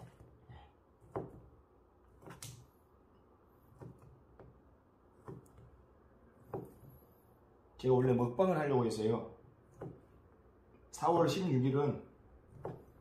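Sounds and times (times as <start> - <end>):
knife chopping on cutting board: 1.0 - 2.6, 3.6 - 5.8, 6.4 - 7.0, 9.7 - 10.1, 12.5 - 13.0.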